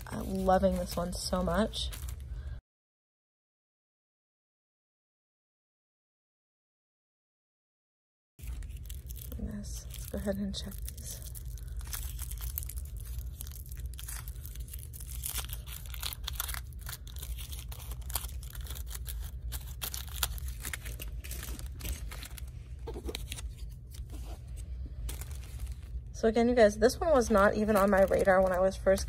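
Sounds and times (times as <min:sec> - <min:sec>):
plastic wrapper crinkling and tearing: 0:00.0 - 0:02.6, 0:08.4 - 0:26.2, 0:26.9 - 0:29.0
steady low hum: 0:08.4 - 0:29.0.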